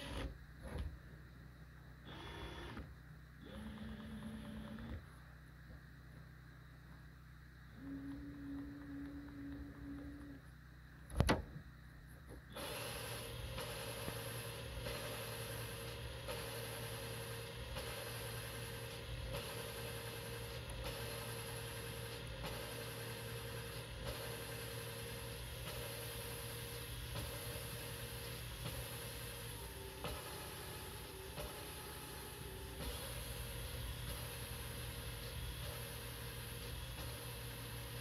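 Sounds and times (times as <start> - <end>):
motor running: 0.0 - 0.9, 2.0 - 5.2, 7.7 - 11.3, 12.2 - 38.0.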